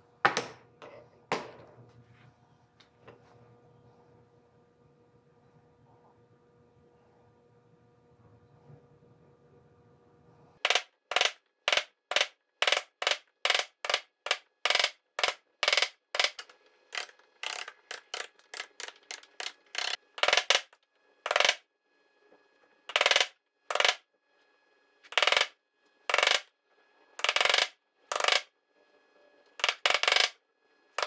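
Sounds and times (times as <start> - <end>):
hammer striking chisel: 10.7 - 17.1.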